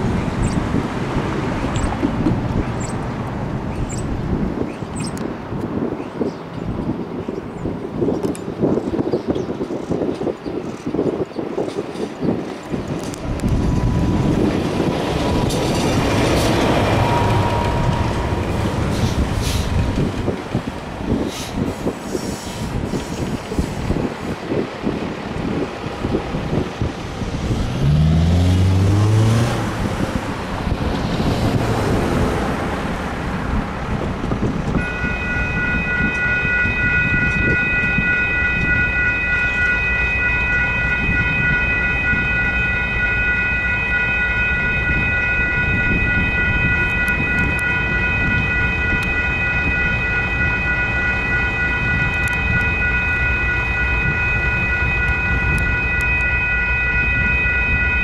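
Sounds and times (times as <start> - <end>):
railroad crossing bells ringing: 0.0 - 5.6, 6.2 - 58.0
truck diesel engine pulling away: 27.4 - 32.8.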